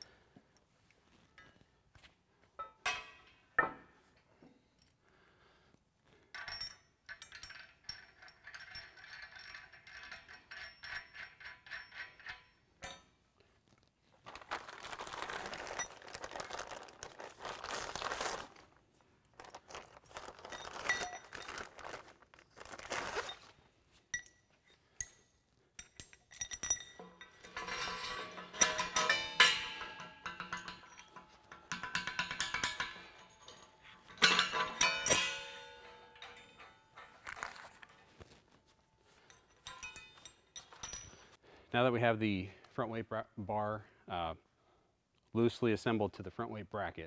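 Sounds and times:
metal bolts clinking: 2.6s - 3.8s, 6.3s - 13.2s, 24.1s - 38.4s, 39.1s - 41.4s
plastic bag rustling: 14.2s - 23.6s.

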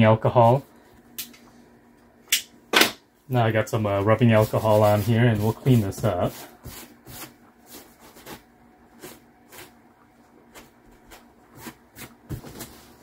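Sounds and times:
paper towel rubbing a wall: 3.9s - 13.0s.

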